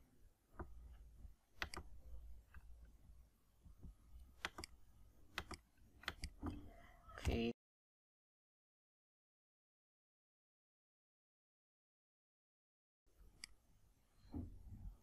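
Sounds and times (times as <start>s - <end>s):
computer mouse clicking: 1.6s - 1.9s, 4.4s - 7.4s, 13.4s - 13.6s.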